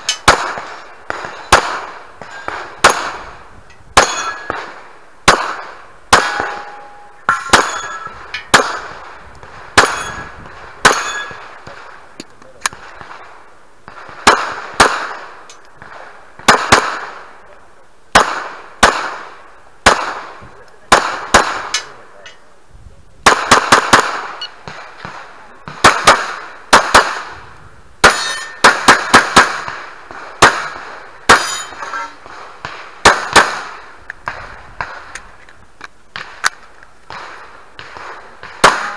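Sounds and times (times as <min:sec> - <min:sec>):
pistol shots: 0:00.0 - 0:03.3, 0:04.0 - 0:11.9, 0:13.9 - 0:17.3, 0:18.1 - 0:22.0, 0:23.2 - 0:27.4, 0:28.0 - 0:35.3, 0:36.1 - 0:38.9
metallic ring of steel targets: 0:04.0 - 0:04.6, 0:06.2 - 0:08.6, 0:09.8 - 0:11.4, 0:28.0 - 0:28.8, 0:31.3 - 0:32.2.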